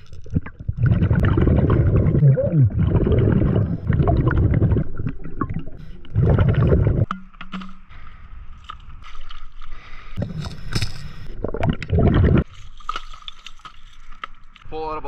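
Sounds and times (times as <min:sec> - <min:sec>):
underwater bubbles gurgling: 0:00.0 - 0:07.1, 0:11.3 - 0:12.4.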